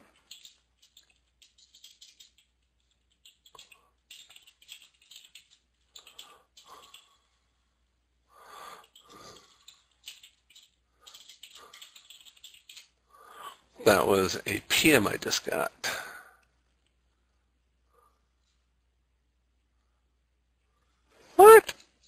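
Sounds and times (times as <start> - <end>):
keyboard typing: 0.0 - 7.1, 8.8 - 13.0.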